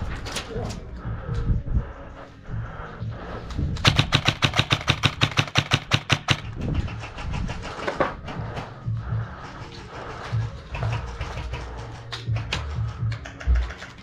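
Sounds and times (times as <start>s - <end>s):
airsoft rifle firing: 3.8s - 8.1s.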